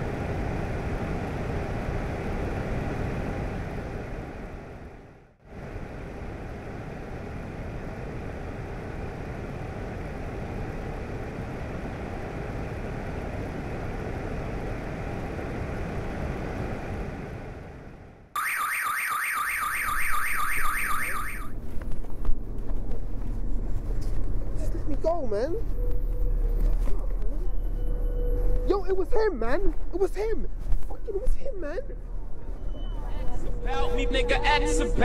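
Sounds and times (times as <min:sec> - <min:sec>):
street traffic hum: 0:00.0 - 0:35.0
fast-warbling electronic siren: 0:18.4 - 0:21.5.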